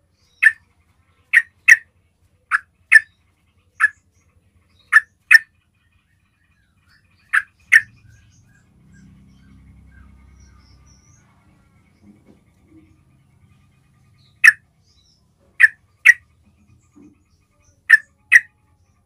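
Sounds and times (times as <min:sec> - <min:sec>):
faint low rumble: 0:06.2 - 0:17.7.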